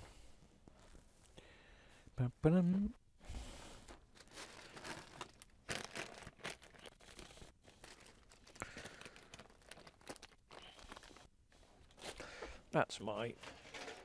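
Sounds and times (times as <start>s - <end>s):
rustling and crinkling: 0.3s - 1.4s, 3.7s - 12.4s.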